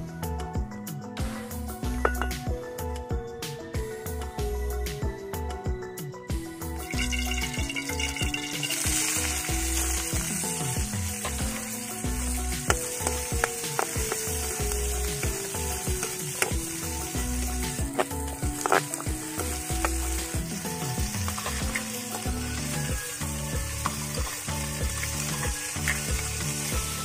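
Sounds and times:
vegetables sizzling in a wok: 0:06.6 - 0:27.0.

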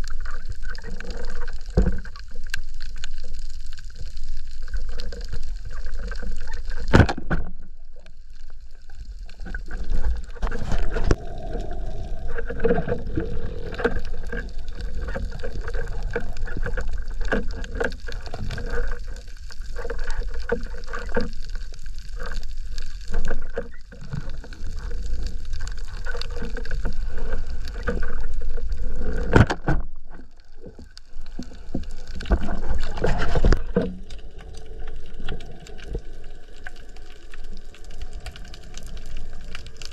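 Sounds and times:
underwater rush of water: 0:00.0 - 0:39.9
underwater clicks and knocks: 0:06.0 - 0:08.1, 0:09.3 - 0:19.1, 0:25.5 - 0:36.1.

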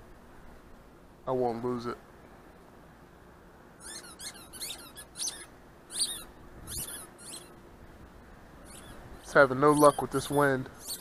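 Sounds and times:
faint background hiss: 0:00.0 - 0:11.0
short high-pitched squeaks: 0:03.8 - 0:07.6, 0:08.6 - 0:11.0.

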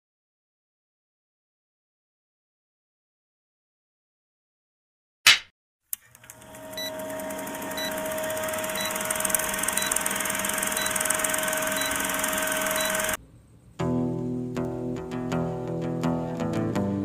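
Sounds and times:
film projector rattle and hum: 0:06.0 - 0:13.2.

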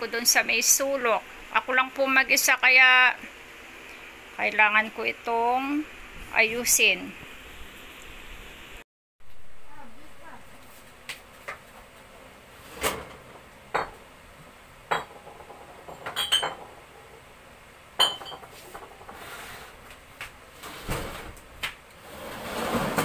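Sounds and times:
shuffling noise: 0:10.5 - 0:11.4
glass bottles clinking: 0:14.9 - 0:16.8, 0:18.0 - 0:18.6.

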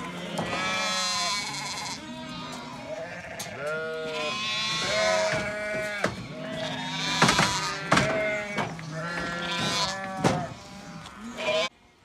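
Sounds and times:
sheep bleating: 0:00.0 - 0:11.8.

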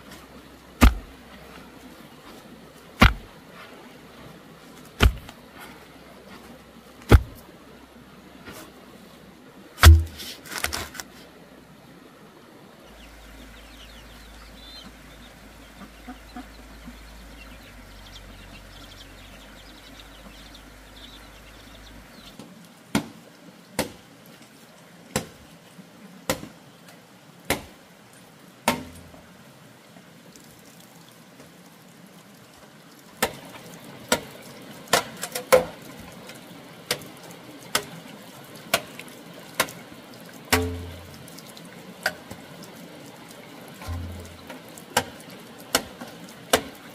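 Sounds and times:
sharp knocks: 0:00.8 - 0:01.1, 0:03.0 - 0:03.3, 0:05.0 - 0:05.3, 0:07.1 - 0:07.4, 0:09.8 - 0:10.9, 0:40.5 - 0:41.2, 0:43.8 - 0:44.6.

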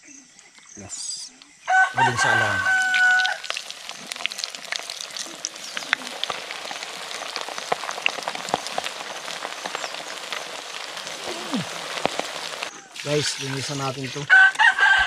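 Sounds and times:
rooster crowing: 0:01.7 - 0:03.6, 0:14.3 - 0:15.0
food deep-frying in oil: 0:01.7 - 0:15.0.

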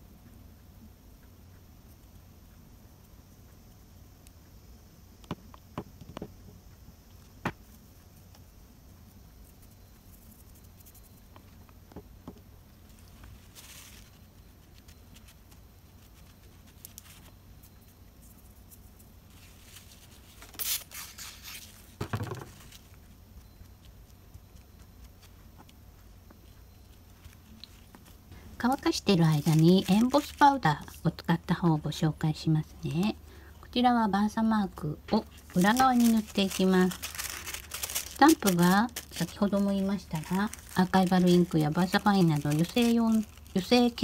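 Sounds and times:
faint low hum: 0:00.0 - 0:44.0
wet wipe rustling: 0:12.9 - 0:17.3, 0:35.2 - 0:44.0.

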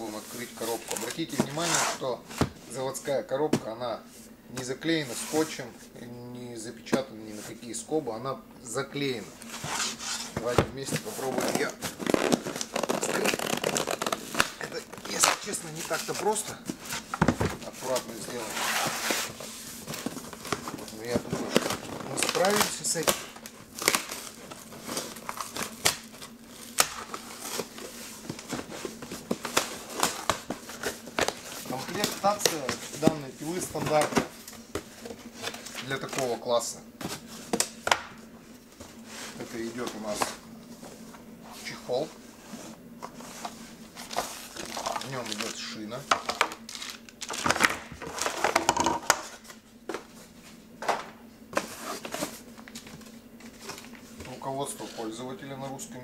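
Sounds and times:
cardboard crackling and scraping: 0:00.0 - 0:03.0, 0:09.1 - 0:36.4, 0:38.8 - 0:48.6, 0:51.5 - 0:55.2
items knocking and tapping: 0:16.6 - 0:17.6, 0:47.5 - 0:49.3.

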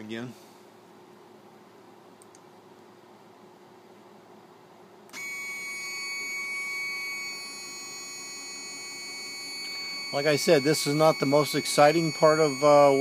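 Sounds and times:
stepper motors whining: 0:05.2 - 0:13.0.

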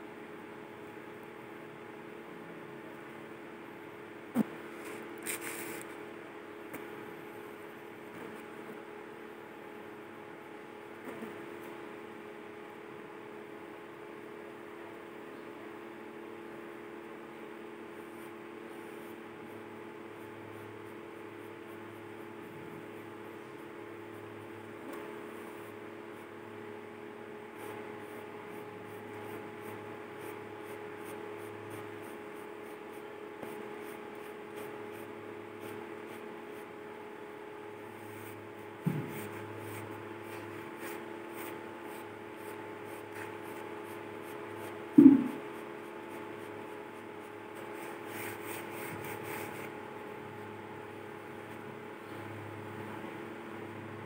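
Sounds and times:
steady background hum: 0:00.0 - 0:54.0
pencil scratching on paper: 0:04.4 - 0:05.9, 0:17.4 - 0:36.8, 0:37.8 - 0:49.8.

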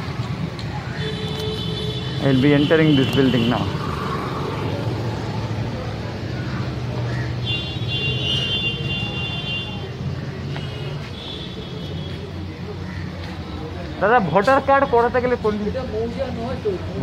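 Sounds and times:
street traffic: 0:00.0 - 0:17.0
scooter engine passing: 0:03.0 - 0:07.5.

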